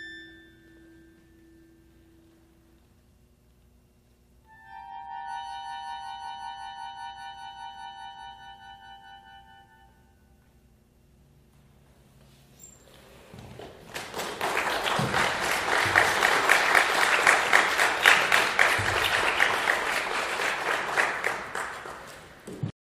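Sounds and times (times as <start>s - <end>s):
audience applauding: 13.5s - 22.6s.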